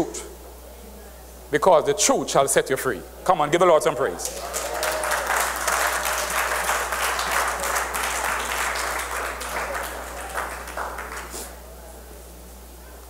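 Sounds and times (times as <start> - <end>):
congregation applauding: 4.2 - 11.6.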